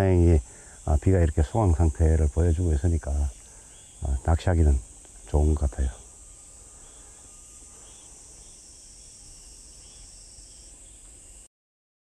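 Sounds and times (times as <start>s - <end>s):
night insects chorus: 0.0s - 11.5s
faint chirps: 0.2s - 11.5s.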